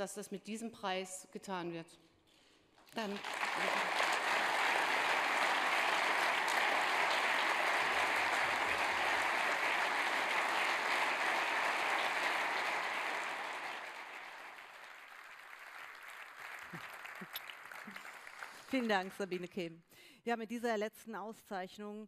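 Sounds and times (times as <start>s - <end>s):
audience applauding: 3.0s - 19.4s.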